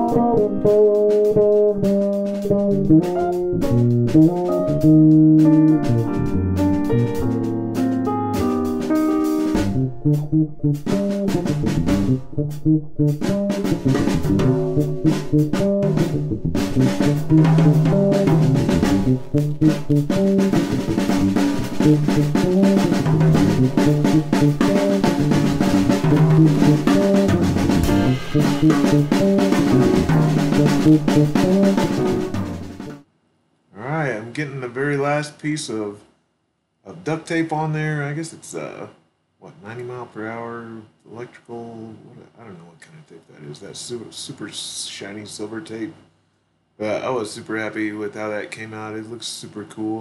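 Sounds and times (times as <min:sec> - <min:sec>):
drum kit beat: 0:00.0 - 0:33.0
pitched instruments: 0:00.0 - 0:33.0.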